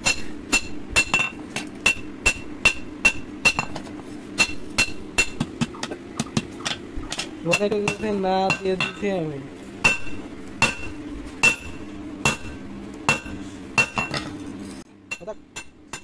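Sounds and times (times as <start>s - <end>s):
hammer striking metal on anvil: 0.0s - 3.8s, 4.4s - 6.5s, 7.5s - 9.1s, 9.8s - 14.4s, 15.1s - 16.0s
person speaking: 7.4s - 9.6s.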